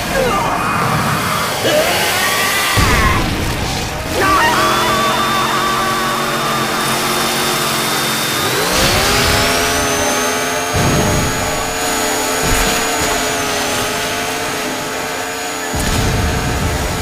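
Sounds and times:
cartoon chainsaw revving: 0.0s - 17.0s.

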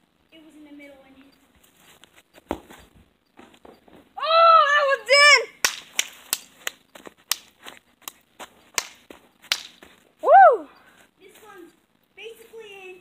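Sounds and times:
person shouting a call: 4.2s - 5.5s
sharp irregular taps: 5.6s - 10.0s.

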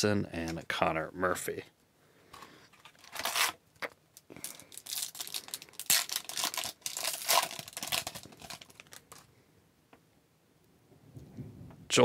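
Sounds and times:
foil wrapper crinkling and tearing: 2.7s - 9.3s.

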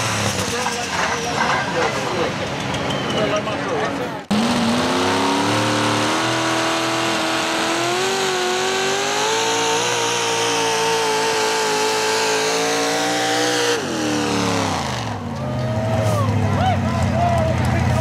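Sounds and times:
supercharged engine roaring: 4.2s - 18.0s.

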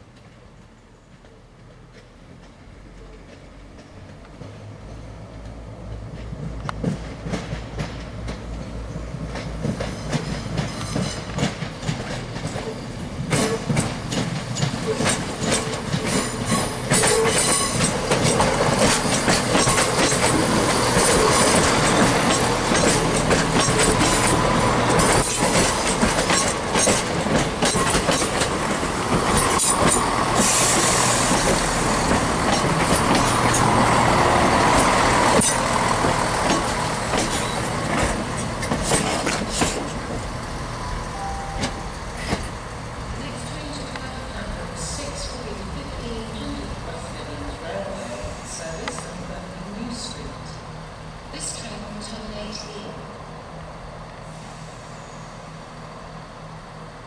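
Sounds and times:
train wheels clicking over rail joints: 0.1s - 40.7s, 41.6s - 47.9s
diesel engines humming: 12.4s - 57.0s.

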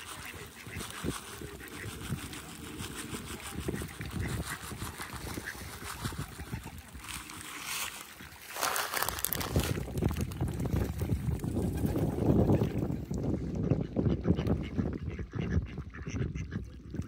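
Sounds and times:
ducks quacking: 0.0s - 9.1s, 13.5s - 17.0s
small water splashes: 0.0s - 17.0s.

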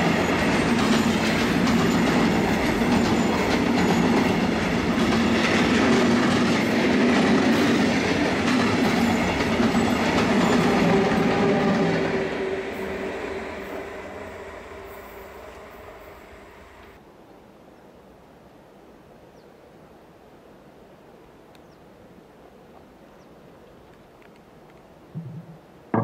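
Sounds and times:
steel wheels clicking on rail: 0.0s - 11.8s
freight train rolling past: 0.0s - 17.0s.

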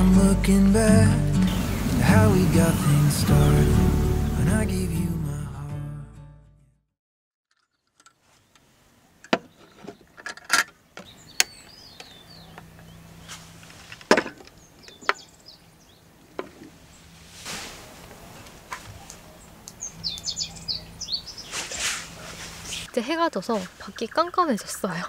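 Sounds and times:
birds chirping: 0.0s - 4.9s, 8.4s - 10.2s, 10.8s - 17.2s, 18.1s - 25.0s.

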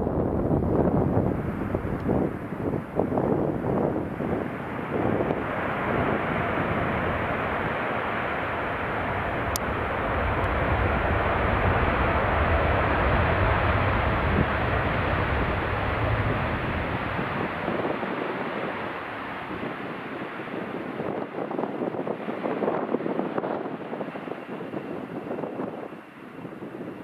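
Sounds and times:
jet airliner roar on runway: 0.0s - 27.0s.

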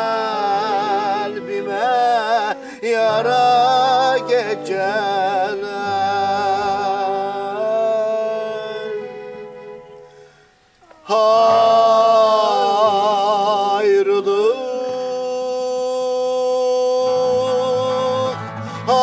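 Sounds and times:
man singing folk song: 0.0s - 9.9s, 10.9s - 19.0s
accordion: 0.0s - 10.8s, 17.3s - 19.0s
acoustic guitar: 0.0s - 19.0s.

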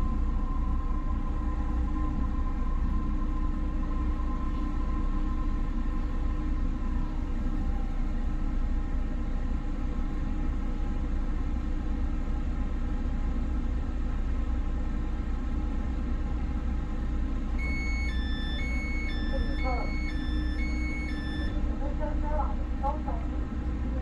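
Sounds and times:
train rumble and hum: 0.0s - 24.0s
electronic chime: 17.6s - 21.6s.

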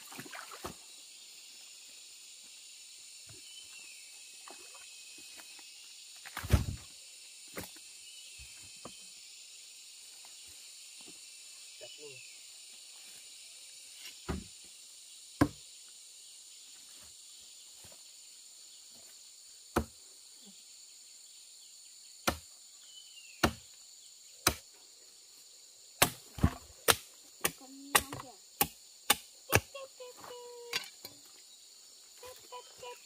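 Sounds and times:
high drone of insects: 0.0s - 33.0s
sharp hand tool strikes: 22.2s - 22.4s, 23.4s - 23.6s, 24.4s - 24.6s, 26.0s - 29.7s.

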